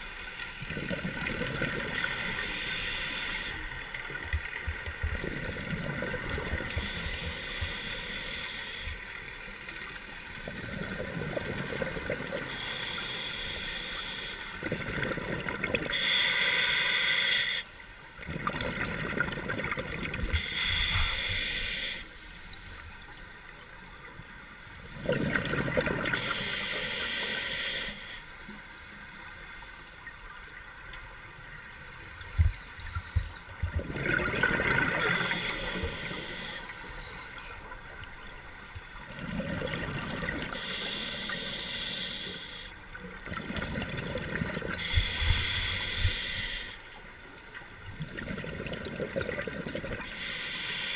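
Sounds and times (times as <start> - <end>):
diver breathing through regulator: 1.9 - 3.7, 6.7 - 9.1, 12.4 - 14.6, 15.9 - 17.7, 20.3 - 22.2, 26.0 - 28.3, 34.5 - 37.2, 40.3 - 42.8, 44.6 - 46.9, 50.0 - 50.9
bubbles gurgling: 25.0 - 26.2, 33.7 - 35.1, 39.1 - 40.5, 43.2 - 44.8, 48.0 - 50.0.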